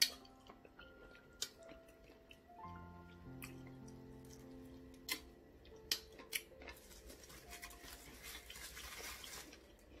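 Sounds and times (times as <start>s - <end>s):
plastic wrap crinkling: 6.4s - 10.0s.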